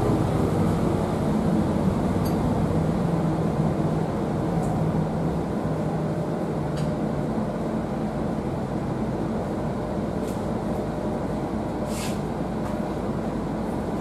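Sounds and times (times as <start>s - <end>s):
bus diesel engine running: 0.0s - 14.0s
brief hiss: 11.9s - 12.2s.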